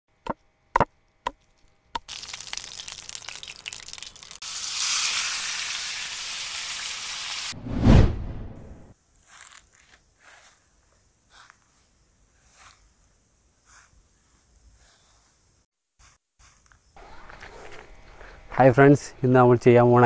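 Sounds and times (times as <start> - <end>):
food frying in hot oil: 2.0 - 7.6
loud low whoosh: 7.6 - 8.9.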